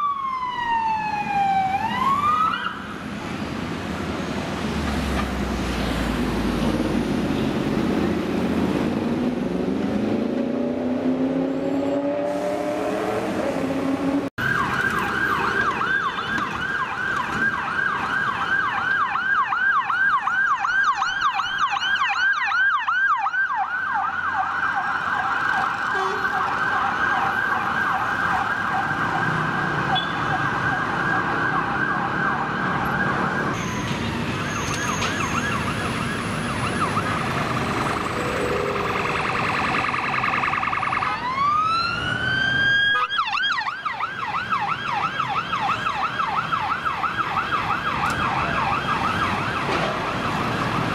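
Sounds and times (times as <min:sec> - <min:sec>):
police siren yelping: 0:00.0 - 0:02.9, 0:14.4 - 0:33.6, 0:34.4 - 0:50.9
siren long rising wail: 0:00.0 - 0:03.2, 0:07.8 - 0:33.6, 0:35.1 - 0:50.9
city traffic noise: 0:00.0 - 0:50.9.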